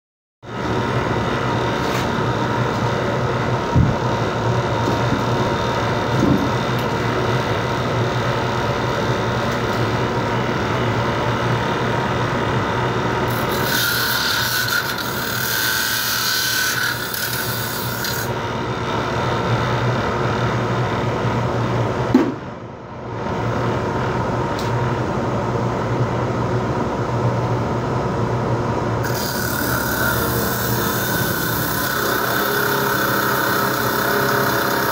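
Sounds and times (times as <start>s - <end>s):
abrasive cut-off tool running: 0.5s - 18.5s, 29.0s - 34.9s.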